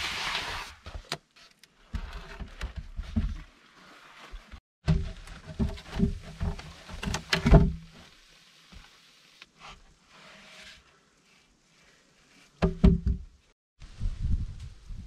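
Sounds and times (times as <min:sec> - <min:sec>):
wooden logs knocking and thumping: 0:04.8 - 0:08.0, 0:12.6 - 0:13.4.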